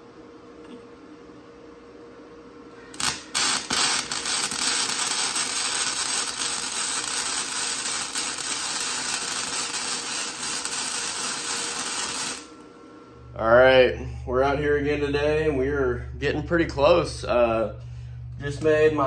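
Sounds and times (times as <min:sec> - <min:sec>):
crackling sizzle of welding arc: 0:02.9 - 0:12.7
welding arc pops: 0:02.9 - 0:12.7.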